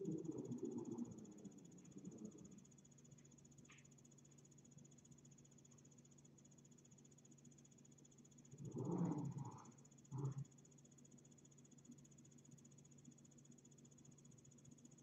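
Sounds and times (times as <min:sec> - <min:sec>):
high-pitched whine: 0:00.0 - 0:02.9
low hum: 0:00.0 - 0:05.2, 0:08.3 - 0:10.7.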